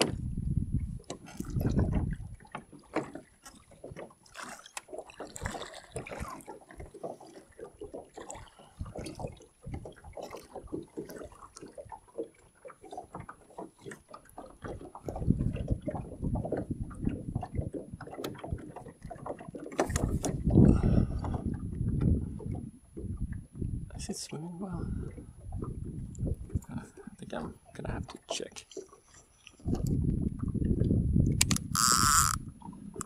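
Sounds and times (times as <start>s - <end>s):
wind rumble on microphone: 0.0s - 2.5s, 8.7s - 10.8s, 14.7s - 28.2s, 29.6s - 33.0s
waves lapping against boat hull: 0.0s - 33.0s.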